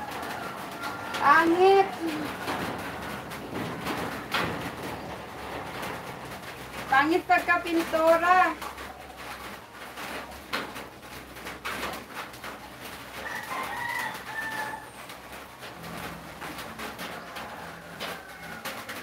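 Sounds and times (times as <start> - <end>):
rooster crowing: 0.0 - 3.4, 13.2 - 15.1, 16.8 - 19.0.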